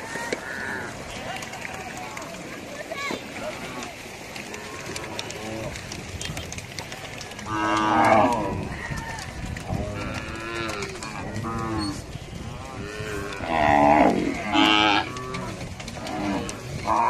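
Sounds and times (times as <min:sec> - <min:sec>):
cattle mooing: 0:07.4 - 0:08.8, 0:09.7 - 0:12.0, 0:12.6 - 0:17.0.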